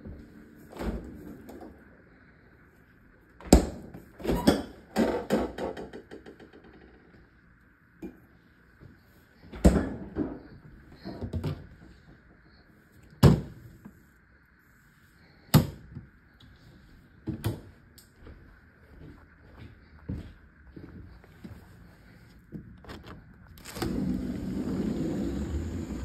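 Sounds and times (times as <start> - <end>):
doors opening and shutting: 22.8 - 26.0.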